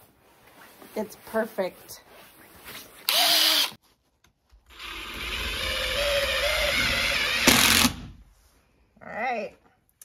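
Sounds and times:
cordless drill driving screw: 3.1 - 3.8, 4.7 - 8.0.

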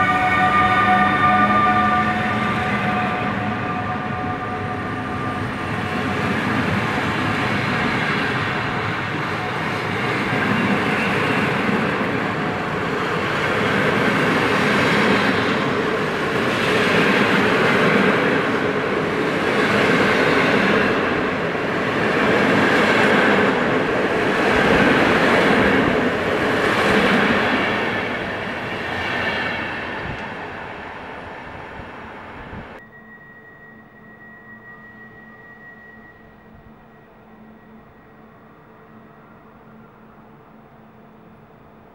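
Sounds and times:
train wheels rumbling on rail: 0.0 - 32.8.

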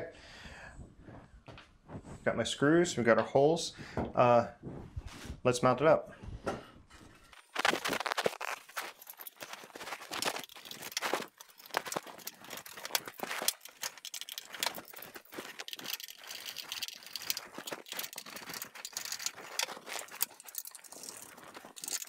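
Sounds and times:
screwdriver turning bolts: 9.0 - 22.0.

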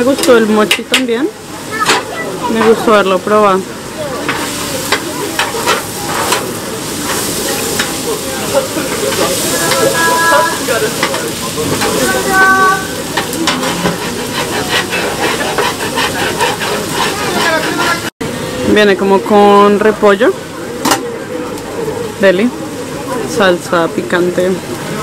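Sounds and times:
chicken sizzling on grill: 0.0 - 25.0
metal utensils scraping plate: 13.1 - 18.1.

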